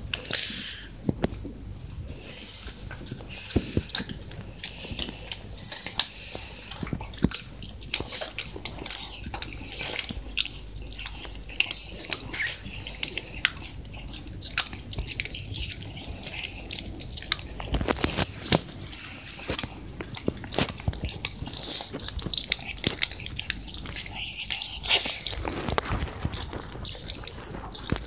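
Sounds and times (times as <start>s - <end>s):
dog chewing with crunches: 0.0s - 28.0s.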